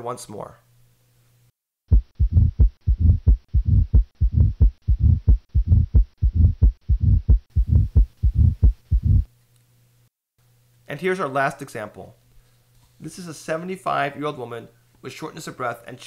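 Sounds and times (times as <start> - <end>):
heartbeat through stethoscope: 1.9 - 9.3
low-pitched heart murmur rumble: 1.9 - 9.3.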